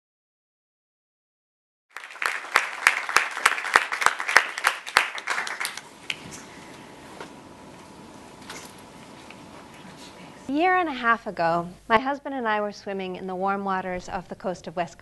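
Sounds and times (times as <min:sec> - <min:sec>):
audience applauding: 0:01.9 - 0:06.5.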